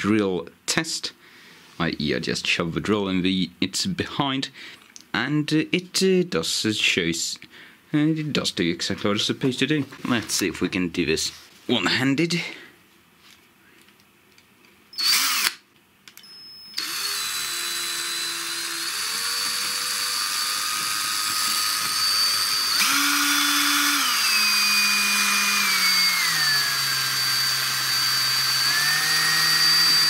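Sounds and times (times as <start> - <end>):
cordless drill spinning: 14.9 - 30.0.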